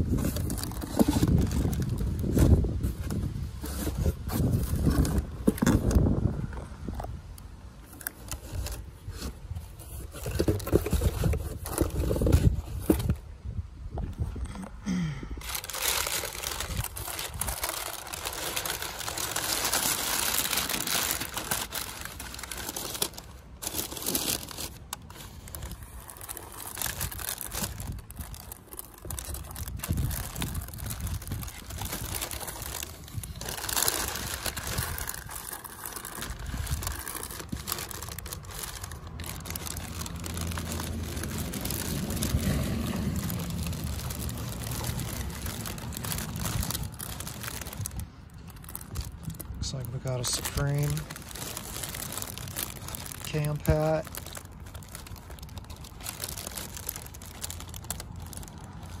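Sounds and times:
paper and plastic bags crinkling: 0:00.0 - 0:07.1, 0:07.8 - 0:13.2, 0:14.3 - 0:59.0.

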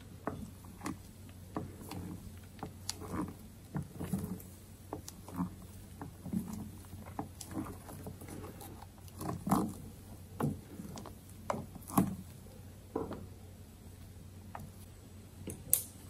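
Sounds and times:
spatula squelching batter in bowl: 0:00.0 - 0:13.1.

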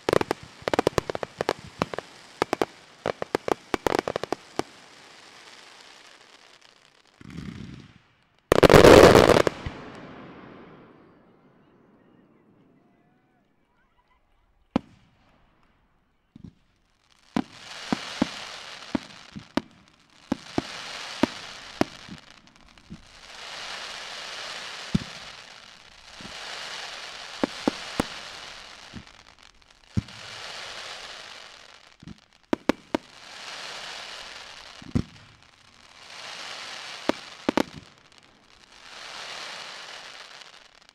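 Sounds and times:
fireworks bangs and thumps: 0:00.0 - 0:04.7, 0:08.5 - 0:10.1
fireworks hiss: 0:00.0 - 0:06.6, 0:08.5 - 0:10.2, 0:17.4 - 0:40.9
fireworks crackle: 0:00.0 - 0:11.2, 0:16.5 - 0:40.9.

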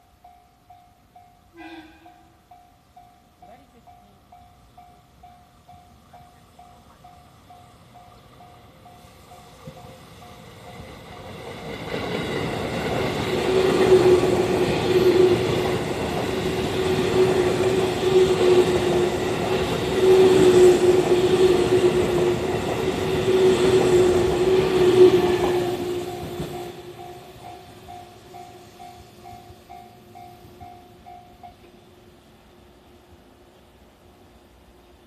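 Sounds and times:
train wheels rushing on rail: 0:01.6 - 0:32.4.

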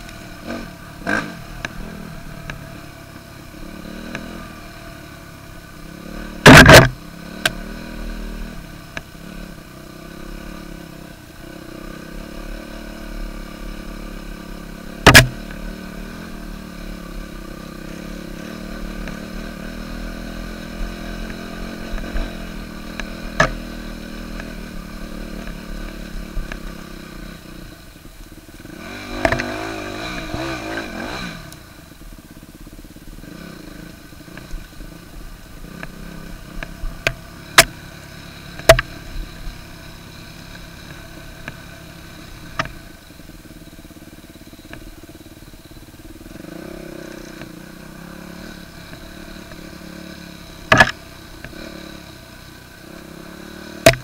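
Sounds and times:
dirt bike engine running: 0:00.0 - 0:54.0
sharp knocks: 0:15.0 - 0:15.4.

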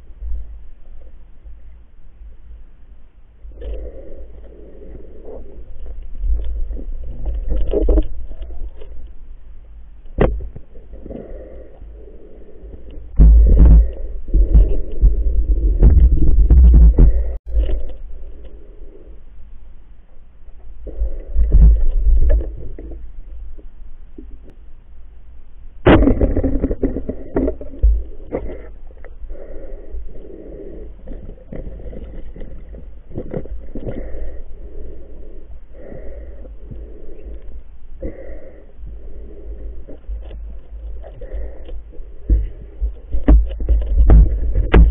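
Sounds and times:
muffled underwater rumbling: 0:00.0 - 0:24.6, 0:25.6 - 0:44.9
muffled water noise: 0:00.0 - 0:44.9
muffled underwater knocking: 0:13.2 - 0:17.6, 0:42.3 - 0:44.9
underwater knocks: 0:43.1 - 0:44.9.

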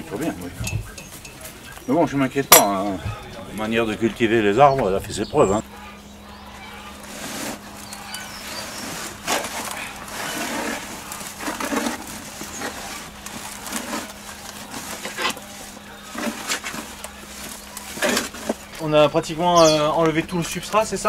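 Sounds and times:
roots crackling loose: 0:01.4 - 0:21.0
tools scratching soil: 0:06.7 - 0:18.9.

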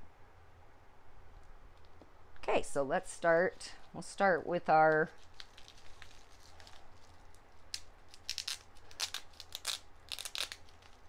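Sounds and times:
bubble wrap crinkling: 0:03.6 - 0:11.0.

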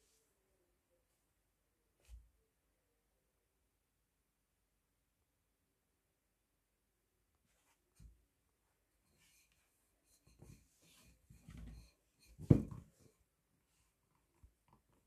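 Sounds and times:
faint rubbing and scratching: 0:07.4 - 0:15.0
soft thump: 0:12.4 - 0:12.8.

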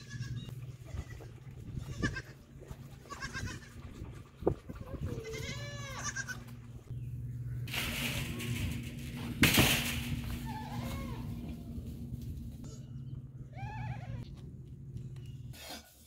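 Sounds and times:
goat kids bleating: 0:00.0 - 0:04.0, 0:04.8 - 0:06.8, 0:10.4 - 0:11.8
steady low hum: 0:00.0 - 0:15.6.

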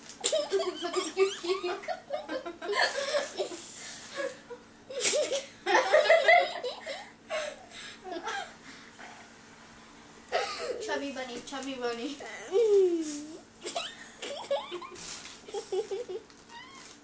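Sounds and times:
girls laughing and giggling: 0:00.2 - 0:08.6, 0:12.5 - 0:16.3.

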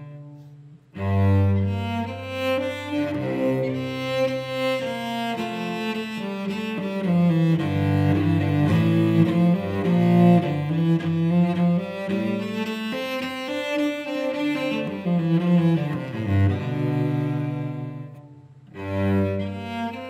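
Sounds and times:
bowed cello: 0:00.0 - 0:20.0.

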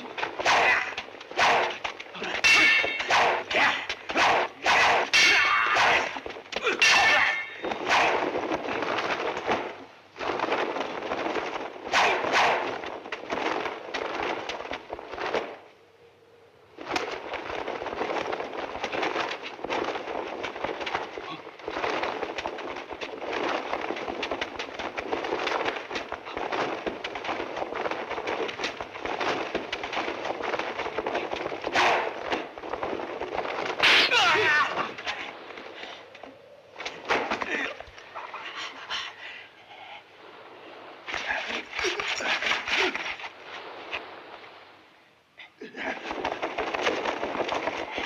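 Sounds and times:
fight sounds: 0:00.0 - 0:14.5, 0:28.5 - 0:32.6, 0:33.6 - 0:35.2
swords clashing: 0:00.3 - 0:08.2, 0:11.9 - 0:12.6, 0:33.8 - 0:34.5.

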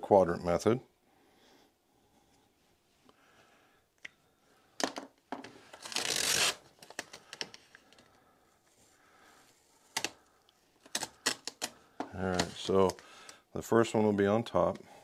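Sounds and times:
tape peeling rasp: 0:05.8 - 0:06.6.

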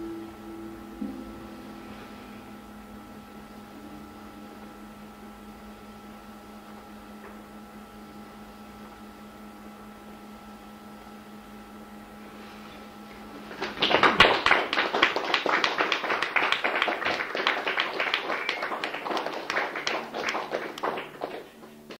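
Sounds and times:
faint hum: 0:00.0 - 0:22.0
tape hiss: 0:00.0 - 0:22.0
audience applause: 0:13.5 - 0:22.0.

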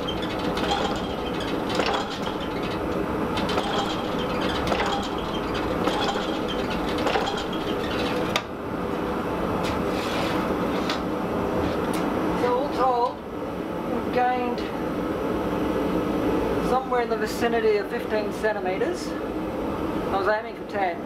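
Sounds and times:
power hammer striking metal: 0:00.0 - 0:02.6, 0:03.4 - 0:07.6
machine running noise: 0:00.0 - 0:12.0.

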